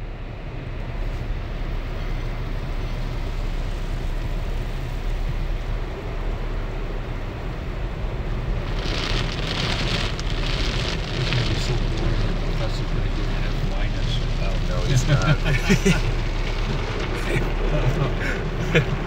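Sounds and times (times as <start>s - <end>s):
water spray drumming on car: 8.2s - 19.0s.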